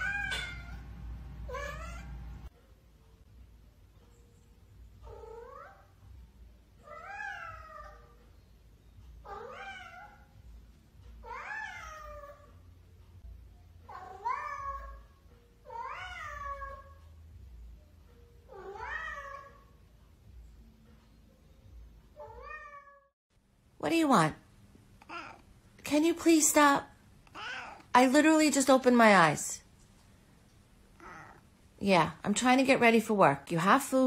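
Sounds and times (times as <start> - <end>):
cat meowing: 0.0 - 0.8, 1.5 - 2.2, 5.0 - 5.9, 6.8 - 8.2, 9.2 - 10.4, 11.2 - 12.6, 13.9 - 17.0, 18.5 - 19.8, 22.2 - 23.1, 25.0 - 25.4, 27.3 - 27.8, 31.0 - 31.4.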